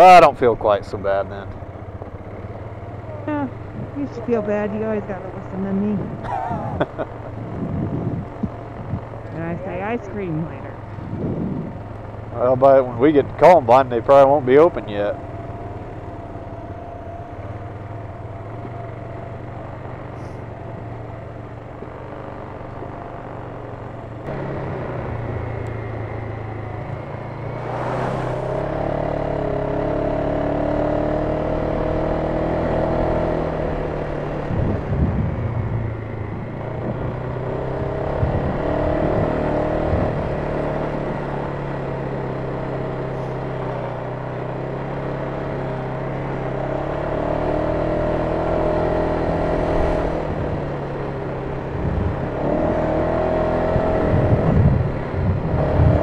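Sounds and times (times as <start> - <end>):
atv engine running: 0.0 - 56.0
brief rush of noise: 27.5 - 28.7.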